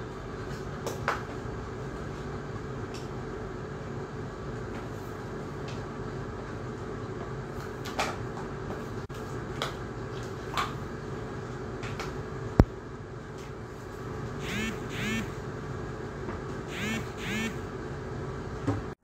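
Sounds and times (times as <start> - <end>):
background hum: 0.0 - 19.0.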